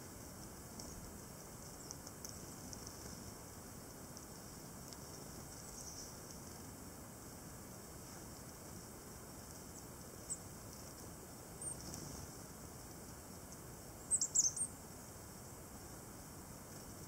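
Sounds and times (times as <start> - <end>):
high thin bird calls: 14.1 - 14.7.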